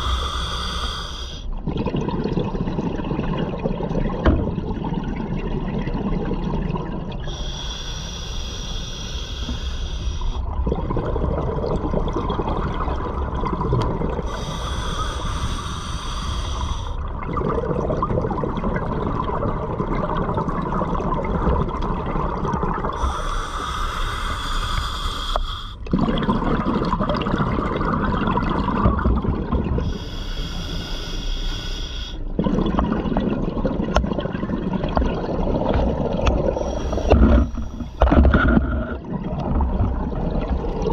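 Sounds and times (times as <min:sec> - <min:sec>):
exhaled bubbles rushing: 0:01.6 - 0:07.3, 0:10.5 - 0:14.5, 0:16.7 - 0:23.3, 0:25.9 - 0:30.0, 0:32.3 - 0:40.9.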